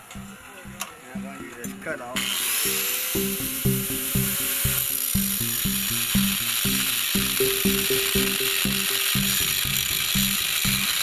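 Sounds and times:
low pitched pulsing: 0.0 - 11.0
angle grinder cutting steel: 2.2 - 7.9.

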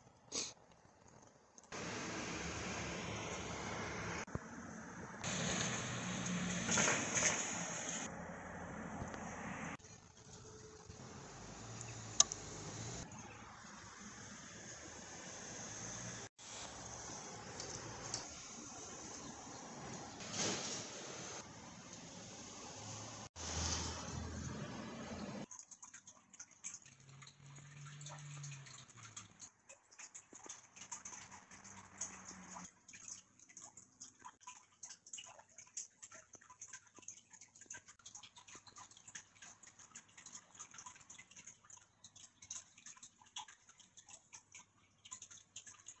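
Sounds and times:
faint clicks and ticks: 0.0 - 1.8, 25.4 - 46.0.

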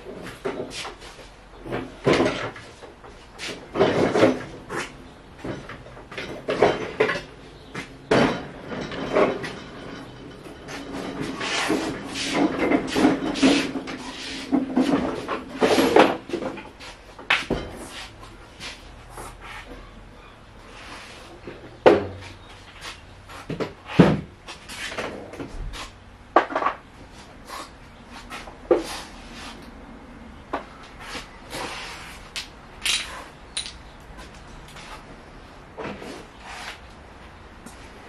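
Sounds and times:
hand tools clanking and clicking: 0.1 - 20.3, 32.3 - 35.0.

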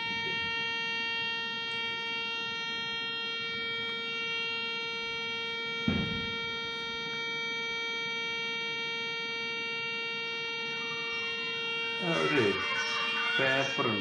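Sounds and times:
electronic buzzing tone: 0.0 - 14.0
knock: 5.9 - 6.3.

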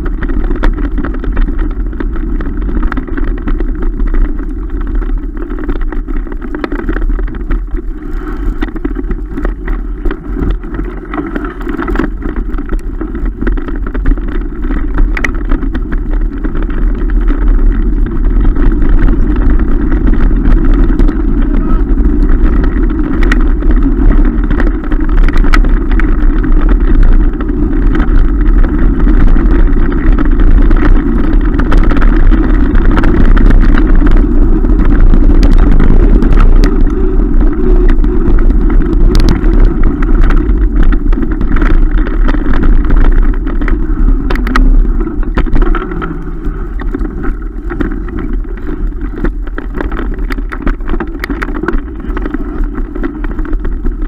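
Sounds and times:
bike clicking and rattling: 0.0 - 54.0
bike tyres on dirt: 0.0 - 54.0
wind rumble on microphone: 0.0 - 54.0.

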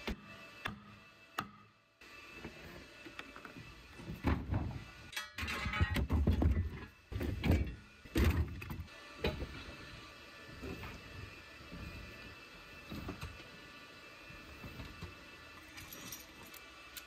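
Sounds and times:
tools rattling in a toolbox: 15.7 - 16.6.

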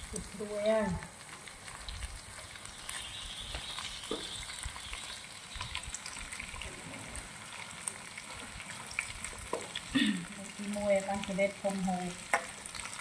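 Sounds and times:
bugs sizzling in a pan: 0.0 - 13.0.

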